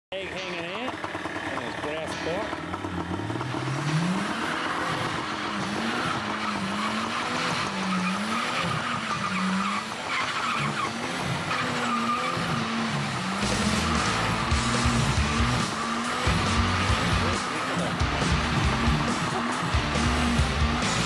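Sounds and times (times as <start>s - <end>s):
car engine revving high: 1.2s - 21.0s
tyres squealing on tarmac: 4.2s - 21.0s.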